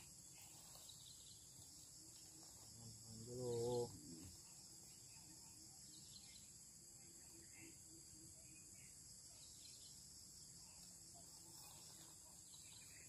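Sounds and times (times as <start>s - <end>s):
insects buzzing: 0.0s - 13.0s
man murmuring: 2.9s - 4.4s.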